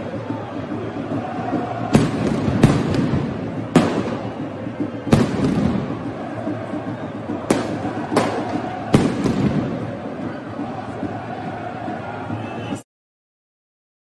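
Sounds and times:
crowd din: 0.0 - 12.9
firecracker bangs: 1.8 - 6.2, 7.4 - 10.0.

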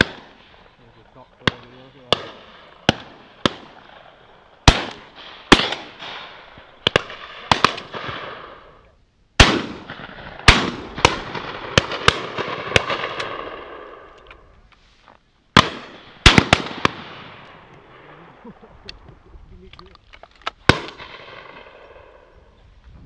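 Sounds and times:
shotguns firing with echo: 0.0 - 8.8, 9.4 - 14.2, 15.6 - 18.5, 20.5 - 22.2.

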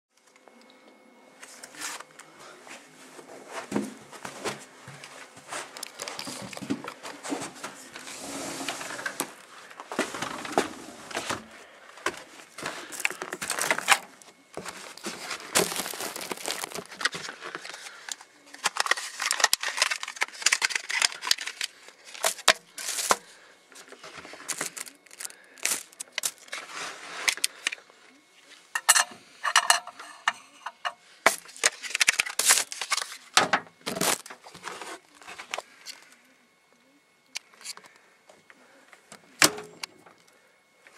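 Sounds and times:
rustling and scraping: 2.7 - 23.2, 33.9 - 35.8.

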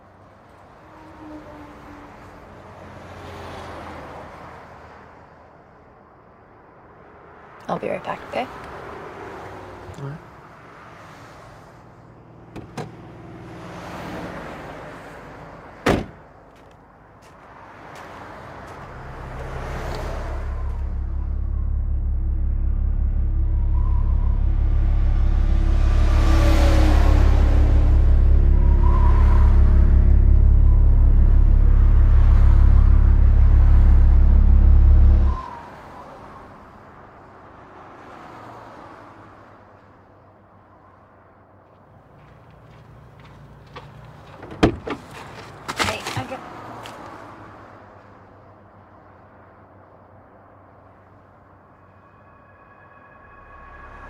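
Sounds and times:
vehicle hum: 0.0 - 54.0
car door shutting: 15.8 - 16.2, 44.4 - 45.1
car engine running: 18.7 - 35.4.

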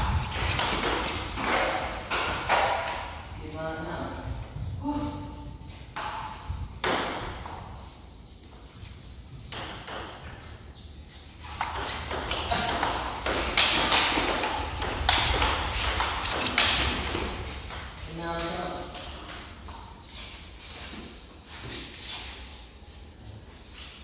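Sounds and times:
table tennis ball hits: 0.0 - 3.2, 6.0 - 7.6, 9.5 - 10.2, 11.6 - 19.9.

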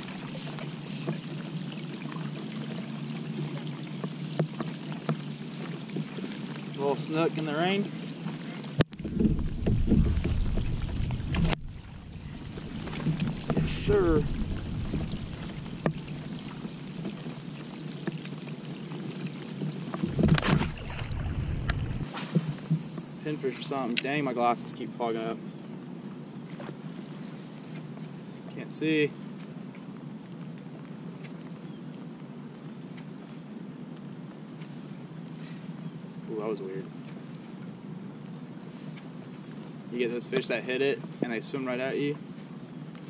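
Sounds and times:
rain falling on water: 0.0 - 43.0
fish splash: 20.0 - 23.2
brief higher hisses: 22.0 - 23.3.

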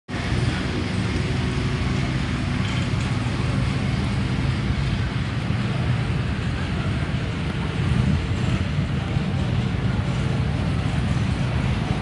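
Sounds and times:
engine running with low rumble: 0.1 - 12.0.

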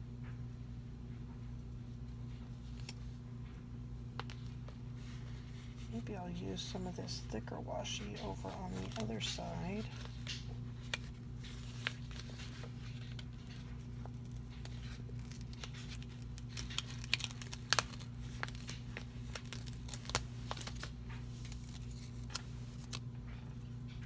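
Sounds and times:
steady low hum: 0.0 - 24.0
paper crinkling: 4.2 - 23.9
tape peeled and torn: 8.2 - 23.0.

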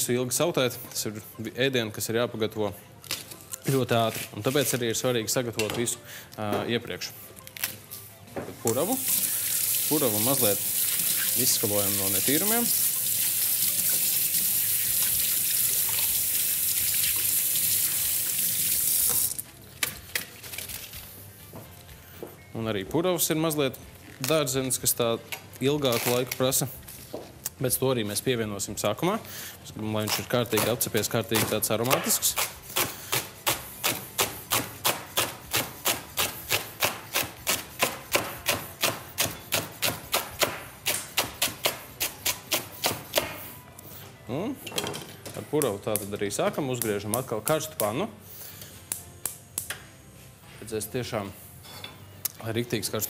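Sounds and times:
kitchen tap running: 9.0 - 19.4
knife chopping on wooden board: 30.5 - 43.4.

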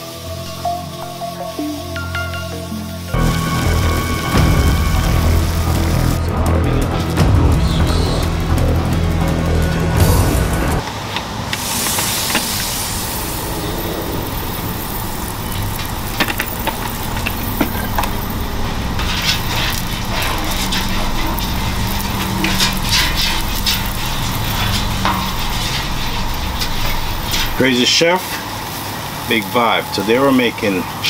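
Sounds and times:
steady low rumble: 0.0 - 27.6
oil sizzling on griddle: 10.9 - 31.0.

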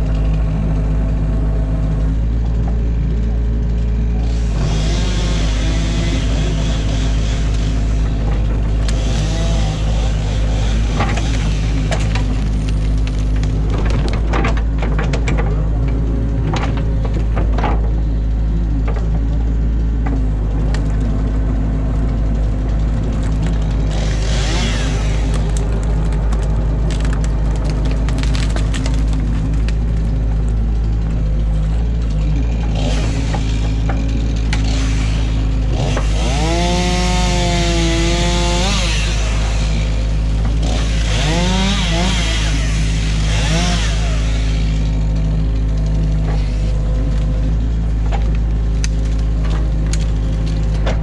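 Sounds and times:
diesel engine running under load: 0.0 - 51.0
sticks cracking and snapping: 6.2 - 17.4, 20.5 - 30.6, 35.7 - 51.0.

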